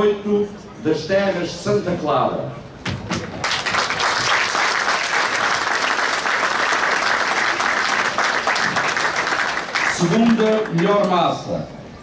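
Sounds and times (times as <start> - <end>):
crowd applauding: 3.2 - 11.1.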